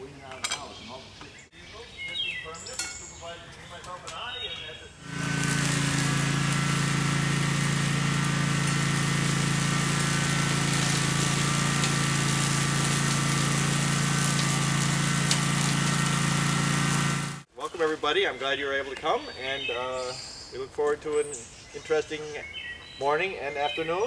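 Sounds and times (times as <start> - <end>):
small mower engine running: 5.0 - 17.5.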